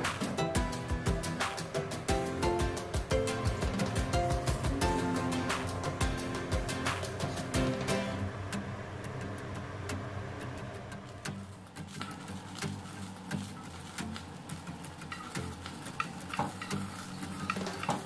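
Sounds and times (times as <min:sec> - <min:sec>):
wooden spatula tapping pan: 0:15.1 - 0:18.0.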